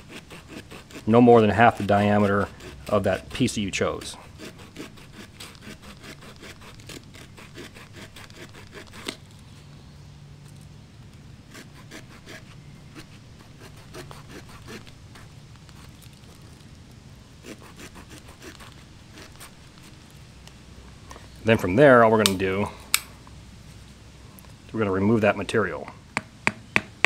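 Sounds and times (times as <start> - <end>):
saw cutting a stick: 0.0 - 9.3, 11.5 - 15.9, 17.4 - 19.9.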